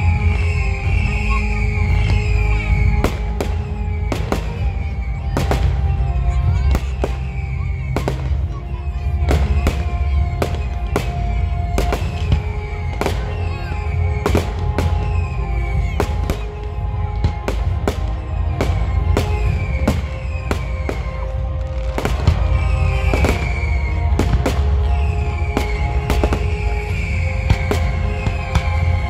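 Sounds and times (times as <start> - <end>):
fireworks bursting: 0.0 - 29.0
loud music: 0.0 - 29.0.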